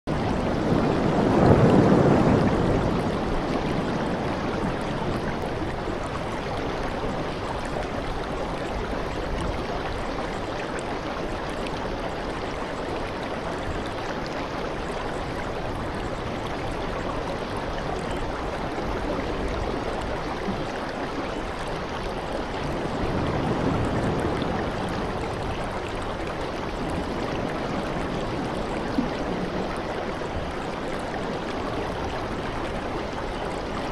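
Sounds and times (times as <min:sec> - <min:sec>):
rushing water: 0:00.0 - 0:33.9.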